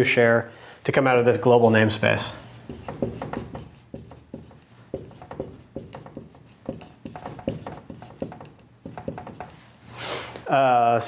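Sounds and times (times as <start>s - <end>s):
marker writing on whiteboard: 2.2s - 9.6s.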